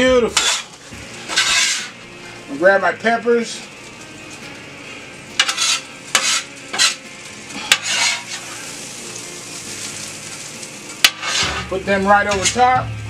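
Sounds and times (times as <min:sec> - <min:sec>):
food sizzling on griddle: 0:00.0 - 0:13.0
metal spatula scraping griddle: 0:00.3 - 0:02.0, 0:05.3 - 0:12.8.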